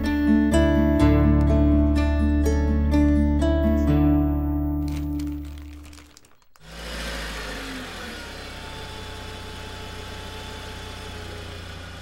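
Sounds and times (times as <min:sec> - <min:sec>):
music: 0:00.0 - 0:06.2.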